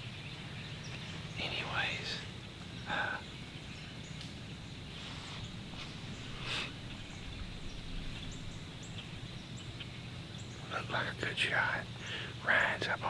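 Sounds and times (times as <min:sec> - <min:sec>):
soft breathy sounds: 0:02.8 - 0:03.3, 0:11.0 - 0:13.0.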